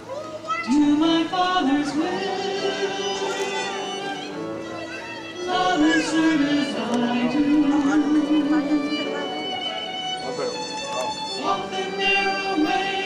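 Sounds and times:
church singing with instruments: 0:00.6 - 0:13.0.

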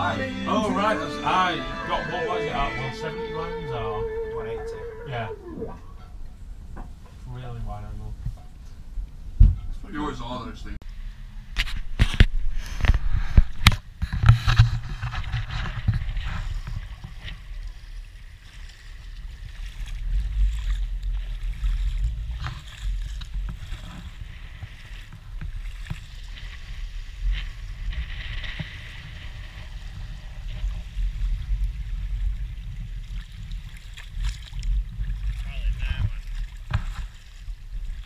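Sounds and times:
sea water sloshing and gurgling: 0:01.8 - 0:07.2, 0:12.4 - 0:38.0
small splashes: 0:15.6 - 0:29.9, 0:32.8 - 0:38.0.

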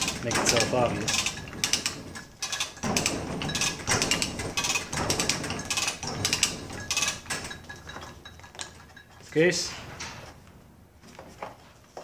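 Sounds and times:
chain hoist rattling and clicking: 0:00.0 - 0:09.5.

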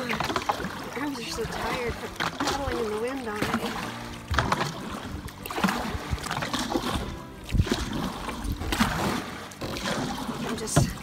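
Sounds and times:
paddle splashing in water: 0:00.0 - 0:11.0
wind buffeting microphone: 0:01.2 - 0:09.3.

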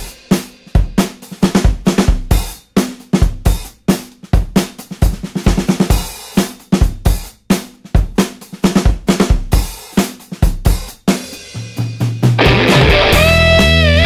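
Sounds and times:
drum kit playing beat: 0:00.0 - 0:14.0.

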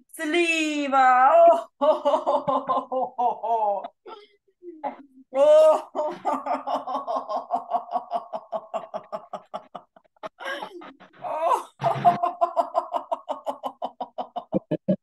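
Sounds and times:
woman laughing rhythmically: 0:01.7 - 0:04.0, 0:04.6 - 0:15.0.

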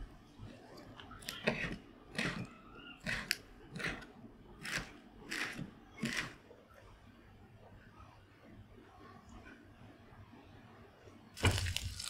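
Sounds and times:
knife slicing lettuce: 0:11.4 - 0:12.0.

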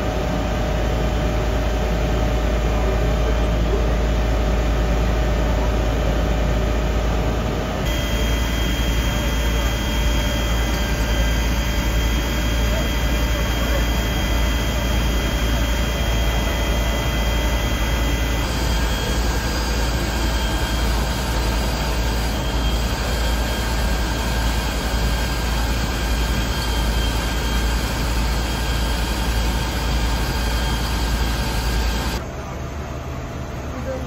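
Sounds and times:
fire engine and pump drone: 0:00.0 - 0:34.0.

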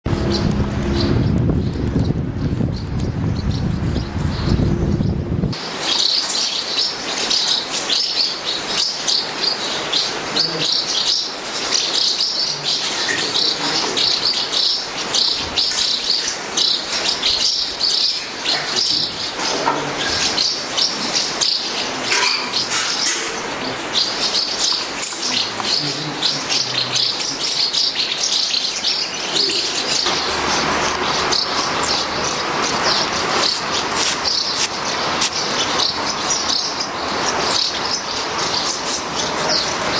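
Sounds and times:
birds chirping: 0:00.0 - 0:39.9
plastic sheet rustling: 0:33.2 - 0:35.4.

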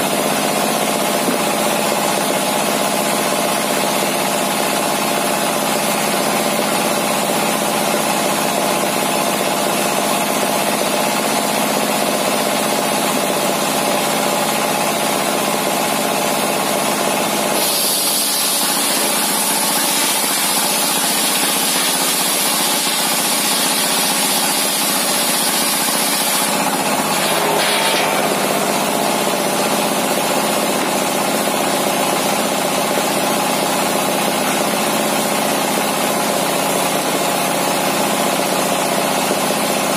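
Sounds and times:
diesel engine running loudly: 0:00.0 - 0:39.9
circular saw whine cutting wood: 0:17.9 - 0:30.6.

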